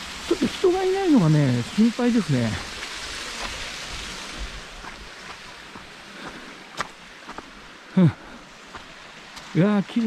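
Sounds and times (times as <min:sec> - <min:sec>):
steady rushing hiss: 0:00.0 - 0:10.0
footsteps on leafy dirt path: 0:00.3 - 0:10.0.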